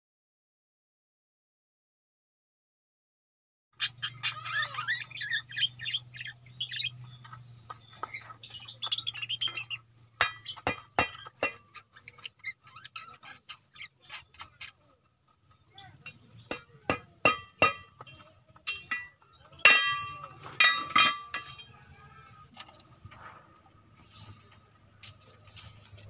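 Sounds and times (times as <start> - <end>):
budgerigars chirping: 3.8 - 14.9
sharp clicks and clinks: 15.8 - 22.7.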